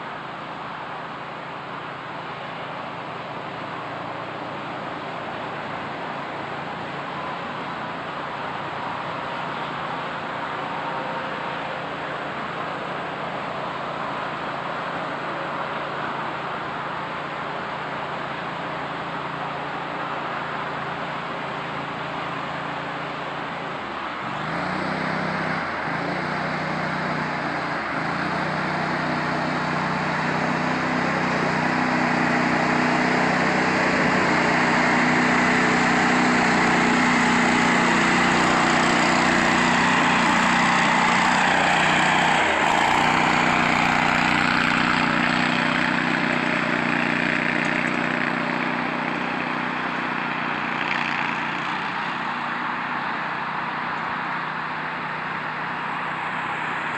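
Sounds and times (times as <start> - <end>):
vehicle engine running: 0.0 - 56.9
wheels splashing through water: 0.0 - 56.9.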